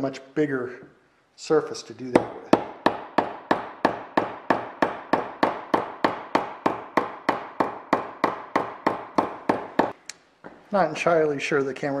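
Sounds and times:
hammer striking sheet metal: 2.2s - 10.0s.

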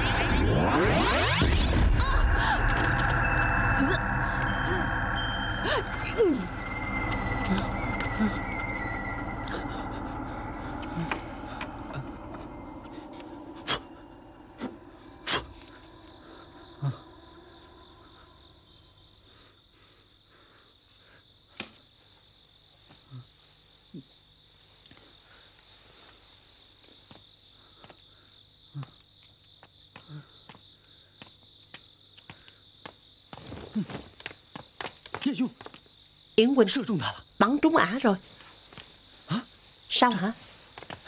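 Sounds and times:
crickets chirring: 0.0s - 41.0s.

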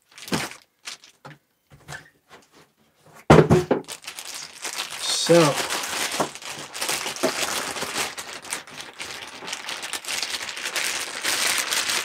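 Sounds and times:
plastic bag crinkling: 0.0s - 1.3s, 3.8s - 12.0s.

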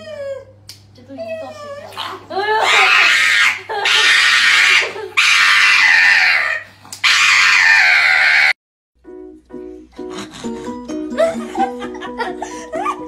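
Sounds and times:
dog screaming shrilly: 1.8s - 8.6s.

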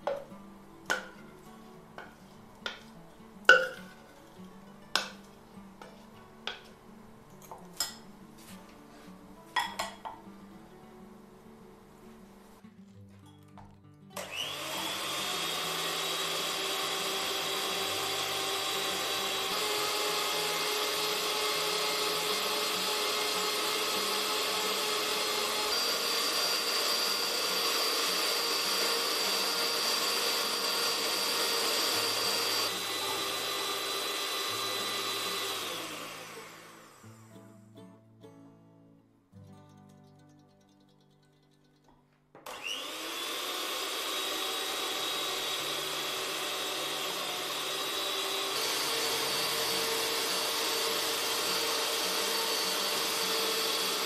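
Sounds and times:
electric hand mixer whining: 14.2s - 37.3s, 42.5s - 54.0s.

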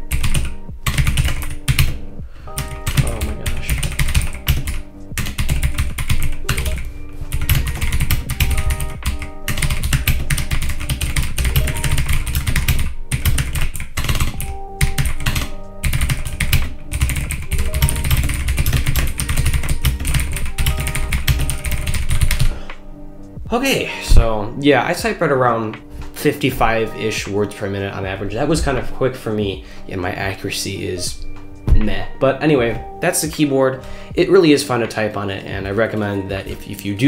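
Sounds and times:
mechanical keyboard typing: 0.0s - 22.5s
background music with bass: 0.0s - 37.0s.

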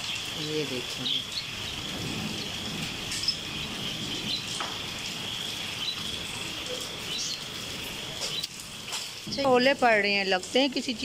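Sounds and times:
high insect trill: 0.0s - 10.7s
hailstones tapping: 0.0s - 11.0s
heavy rain and hail falling: 0.0s - 11.0s.

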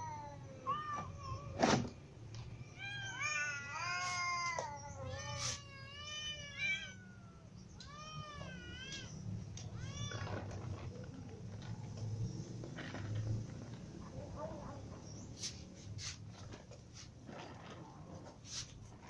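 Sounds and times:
cats meowing: 0.0s - 1.6s, 2.6s - 11.3s.

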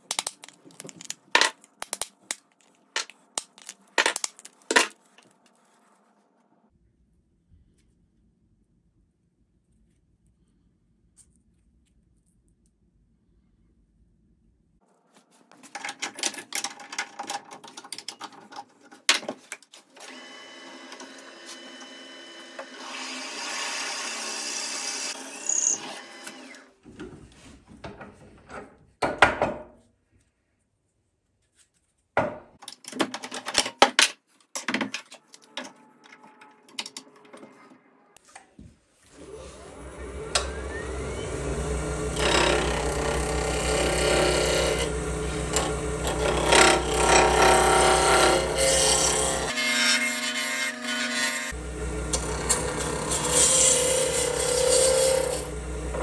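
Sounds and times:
lathe motor humming: 39.4s - 49.5s, 51.6s - 56.0s
turning tool scraping wood: 42.1s - 50.5s, 52.1s - 56.0s.

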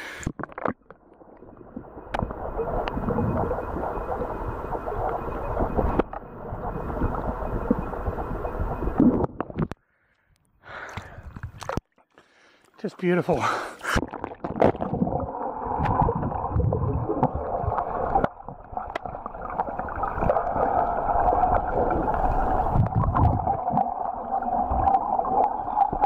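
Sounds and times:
muffled underwater rumble: 0.4s - 9.8s, 14.5s - 26.0s
water splashing and lapping: 10.7s - 26.0s.

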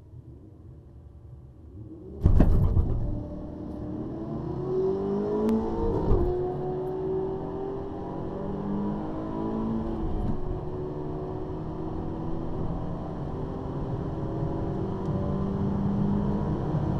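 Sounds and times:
car engine accelerating: 2.0s - 16.9s
judder of knocks: 2.2s - 3.2s.

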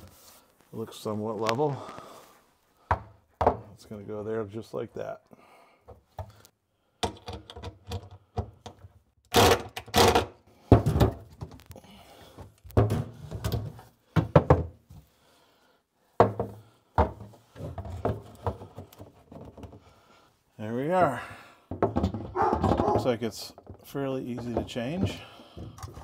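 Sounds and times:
tools knocking on wooden cabinet: 14.2s - 14.8s, 21.7s - 23.0s.

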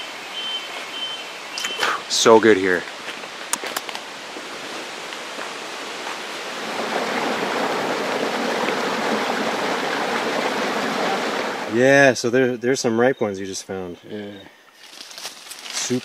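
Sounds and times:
stream rushing over rocks: 0.0s - 12.0s.

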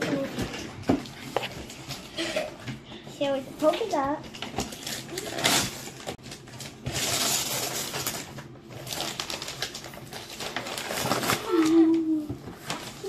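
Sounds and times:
paper crinkling: 3.3s - 13.0s
wrapping paper ripping: 3.9s - 13.0s.

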